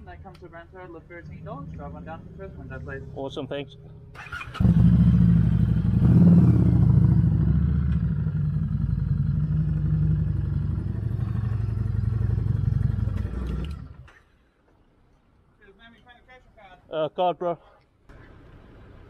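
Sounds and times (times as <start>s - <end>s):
motorcycle engine running: 4.0s - 13.9s.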